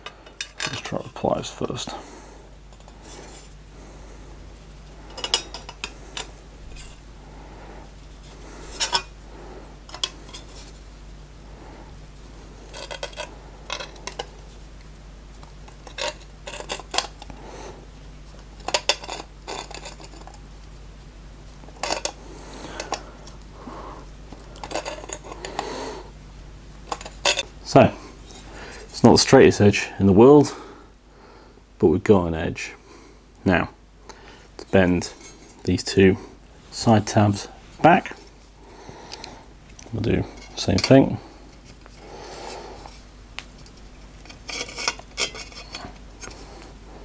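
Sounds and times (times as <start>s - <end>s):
pliers clicking and scraping metal: 8.7s - 9.1s, 12.7s - 14.3s, 15.7s - 17.3s, 26.9s - 27.5s, 43.6s - 46.4s.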